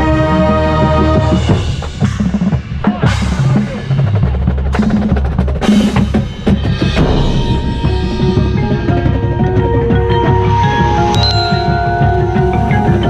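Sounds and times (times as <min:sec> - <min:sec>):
cymbal crashes: 0:06.3 - 0:09.5
low bass drum tones: 0:06.3 - 0:10.3
mallet and drum strokes: 0:06.4 - 0:13.0
ringing mallet-keyboard notes: 0:08.6 - 0:13.0.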